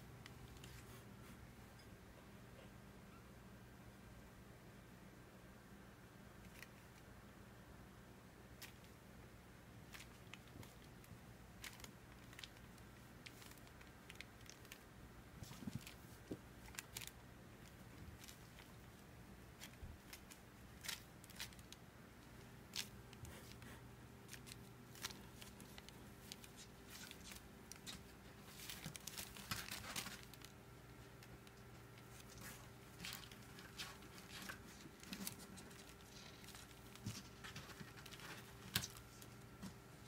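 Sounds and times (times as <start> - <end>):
low steady hum: 0.0 - 40.0
kittens' paws scratching fabric: 0.2 - 1.5, 8.6 - 9.0, 9.8 - 40.0.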